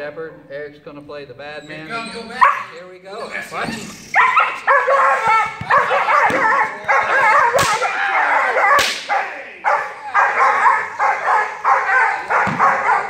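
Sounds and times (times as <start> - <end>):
dog barking and yipping: 1.7 - 13.0
sharp cracks: 7.5 - 9.3.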